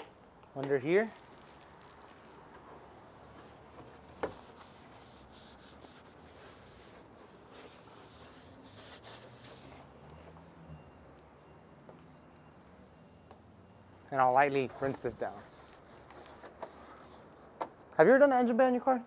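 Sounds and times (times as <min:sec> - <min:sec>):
brush scrubbing: 0:02.8 - 0:09.9, 0:14.8 - 0:17.4.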